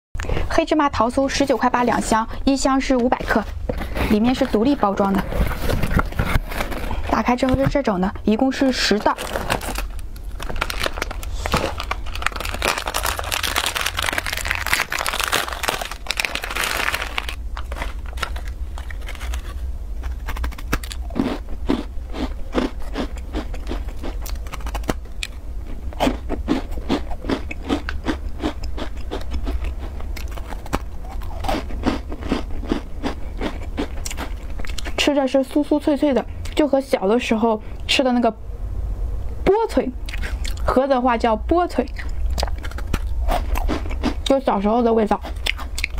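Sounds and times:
plastic wrapper crinkling: 0:08.7 - 0:21.0
crunchy cookie chewing: 0:09.0 - 0:35.0, 0:40.0 - 0:40.7, 0:41.8 - 0:44.4, 0:45.1 - 0:45.9.

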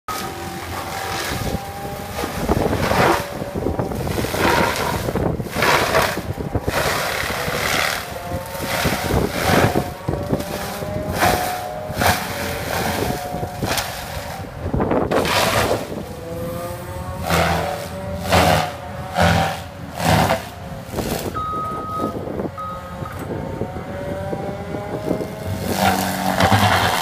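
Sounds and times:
drum grinder grinding wood: 0:00.1 - 0:14.5, 0:25.2 - 0:27.0
excavator diesel engine and hydraulic whine: 0:00.1 - 0:27.0.

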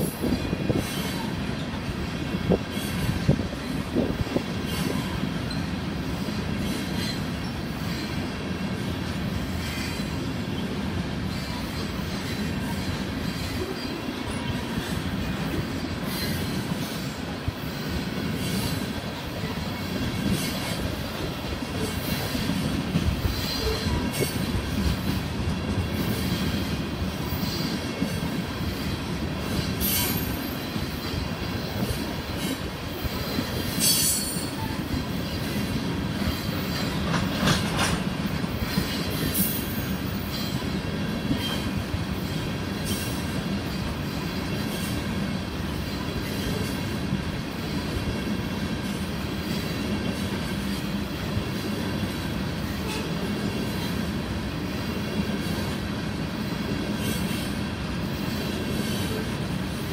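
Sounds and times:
rumble of steel wheels on rail: 0:00.0 - 0:59.9
clicking at rail joints: 0:09.0 - 0:54.2
high-pitched wheel squeals: 0:33.0 - 0:34.8.

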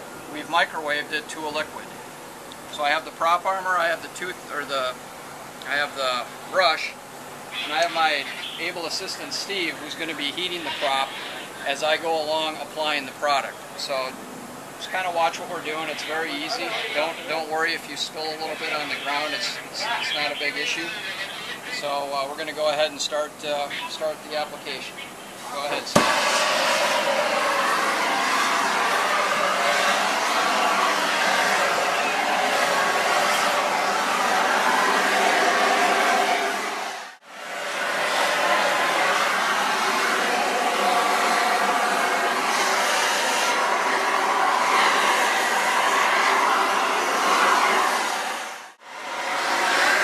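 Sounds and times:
heat gun blowing: 0:25.9 - 0:48.7.

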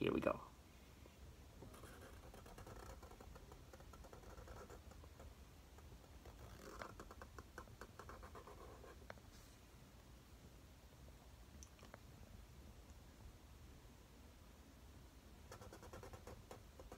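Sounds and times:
marker scratching on paper: 0:01.6 - 0:09.0, 0:15.5 - 0:16.9.

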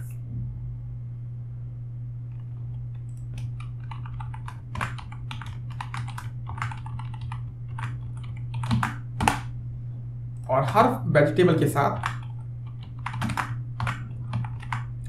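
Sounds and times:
low hum: 0:00.0 - 0:15.0
keyboard typing: 0:02.3 - 0:09.5, 0:11.6 - 0:15.0.

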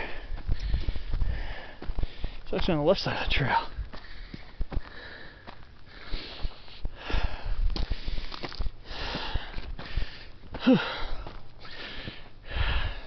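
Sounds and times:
footsteps on gravel trail: 0:00.0 - 0:13.0
man breathing hard: 0:00.0 - 0:13.0.

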